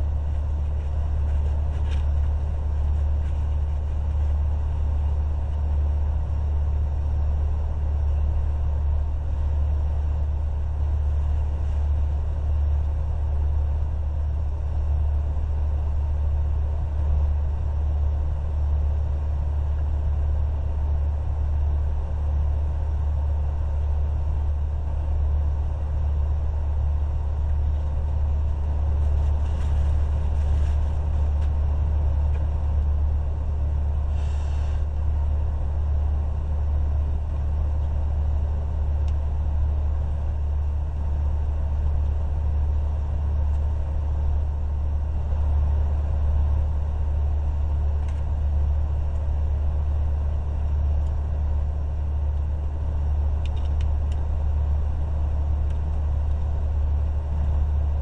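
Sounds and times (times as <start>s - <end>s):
truck engine idling: 0.0s - 58.0s
faint crackles: 28.6s - 31.6s.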